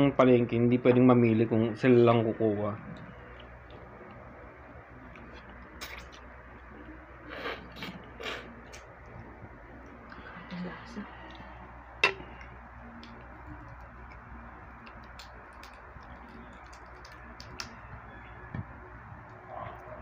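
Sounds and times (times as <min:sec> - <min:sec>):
crab shell cracking: 0:12.1 - 0:17.8.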